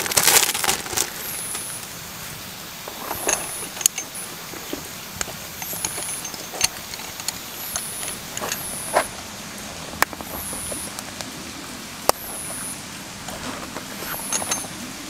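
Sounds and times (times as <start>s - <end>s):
faint steady background noise: 0.0s - 15.0s
light rustling: 2.8s - 15.0s.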